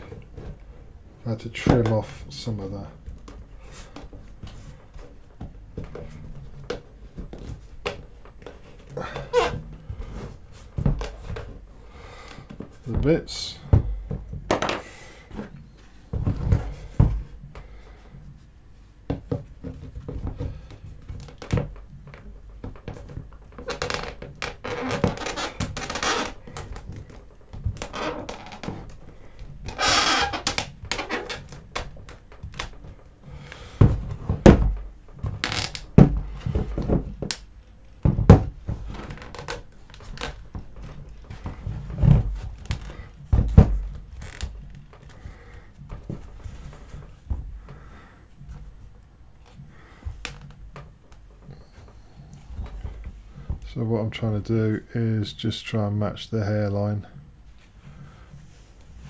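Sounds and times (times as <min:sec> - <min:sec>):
plastic rubbing and scraping: 0:00.0 - 0:54.3
plastic parts knocking together: 0:13.7 - 0:17.7, 0:19.1 - 0:47.8.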